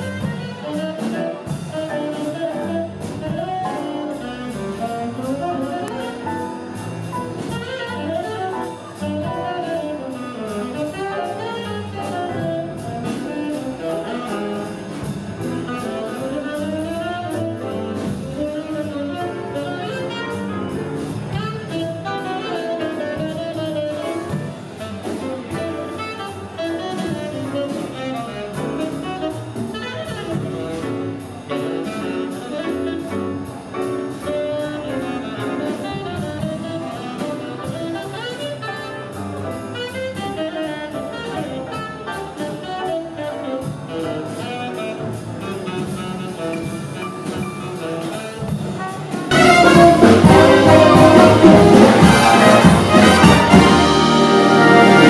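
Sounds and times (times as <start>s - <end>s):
brass: 0.0s - 55.0s
jazz band playing: 0.0s - 55.0s
rhythm section: 0.0s - 55.0s
saxophones: 43.2s - 55.0s.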